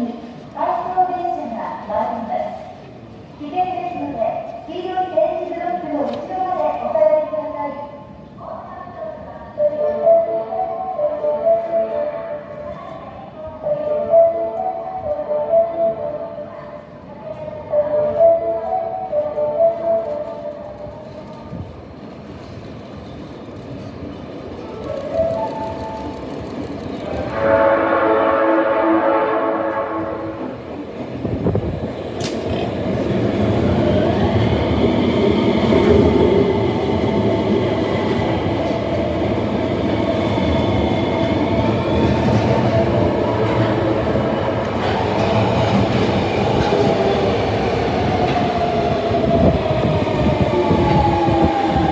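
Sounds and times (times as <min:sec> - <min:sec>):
wheel and rail noise: 0:20.1 - 0:27.6
train horn: 0:27.1 - 0:30.6.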